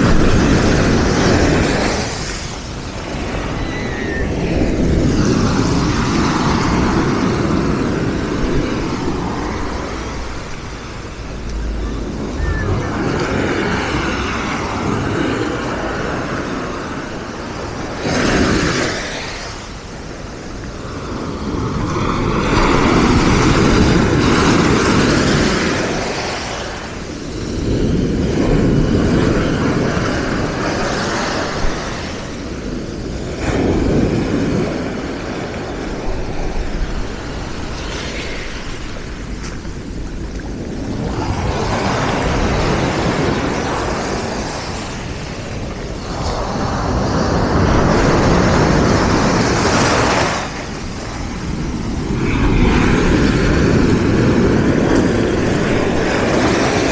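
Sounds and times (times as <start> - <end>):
waves on pebble beach: 0.0 - 56.9
low rumble: 4.5 - 15.4.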